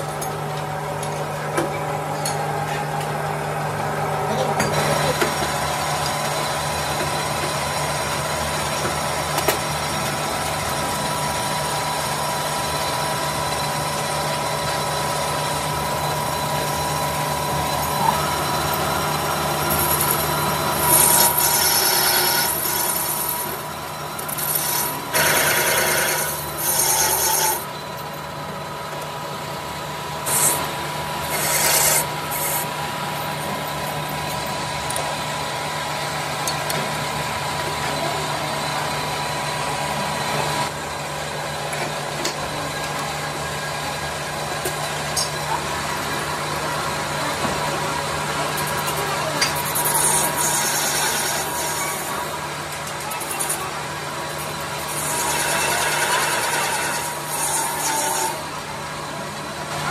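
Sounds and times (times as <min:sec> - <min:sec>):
metal lathe running: 0:00.0 - 0:59.9
harsh scraping of cutting tool: 0:19.6 - 0:27.7, 0:30.2 - 0:32.8, 0:48.6 - 0:53.7, 0:54.3 - 0:58.5.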